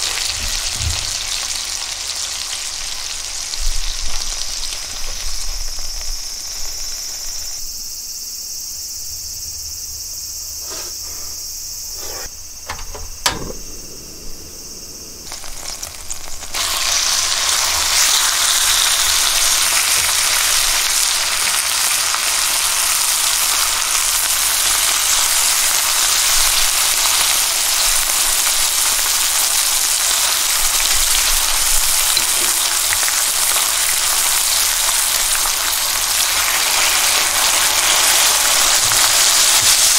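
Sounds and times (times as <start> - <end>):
meat sizzling in a pan: 0.0 - 8.0, 12.0 - 39.9
clicks: 12.0 - 15.4.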